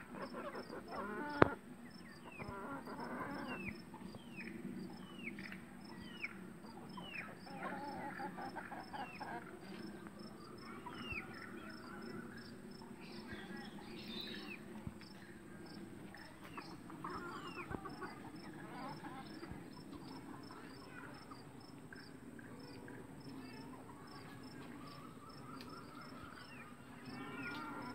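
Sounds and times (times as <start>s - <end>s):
chickens calling softly: 0.0s - 5.3s, 6.0s - 22.1s
faint high insect whine: 0.0s - 27.9s.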